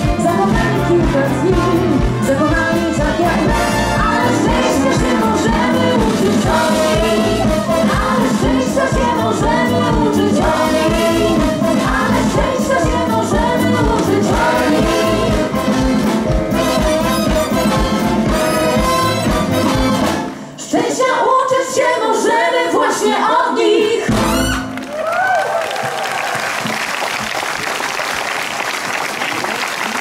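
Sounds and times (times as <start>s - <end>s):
group singing: 0.0s - 16.3s, 20.6s - 24.5s
orchestra playing: 0.0s - 20.6s, 24.1s - 24.9s
applause: 24.7s - 30.0s.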